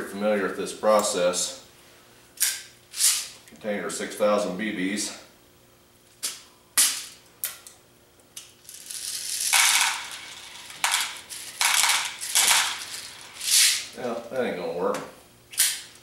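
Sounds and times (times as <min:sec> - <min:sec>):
bbs rattling into plastic tub: 0:09.4 - 0:13.5.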